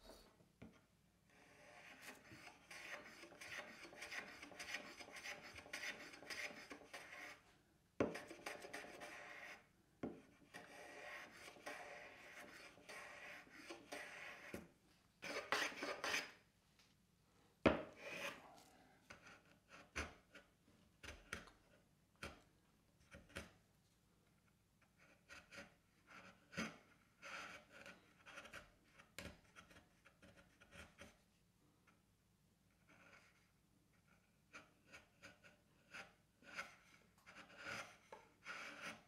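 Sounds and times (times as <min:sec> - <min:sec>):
blade scraping wood: 0:01.3 - 0:07.4, 0:08.0 - 0:16.4, 0:17.7 - 0:18.4, 0:34.9 - 0:39.0
hand plane stroke on wood: 0:01.4 - 0:07.4, 0:08.0 - 0:16.4.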